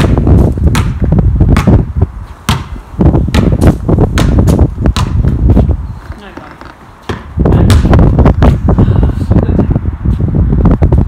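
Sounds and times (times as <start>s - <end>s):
basketball bouncing on paving: 0.0s - 8.7s.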